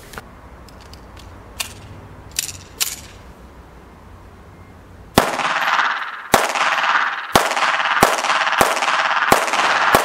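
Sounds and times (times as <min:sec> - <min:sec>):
pistol shots with ringing echo: 0:05.2 - 0:10.0.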